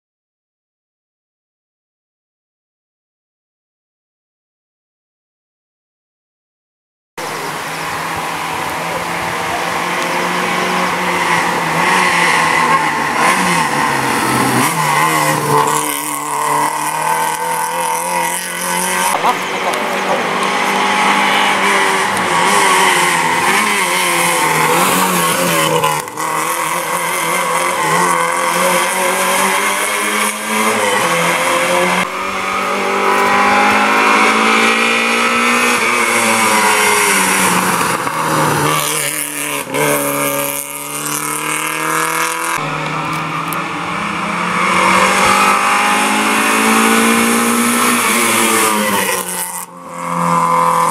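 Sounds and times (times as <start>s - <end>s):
rally car engine revving: 7.2s - 50.9s.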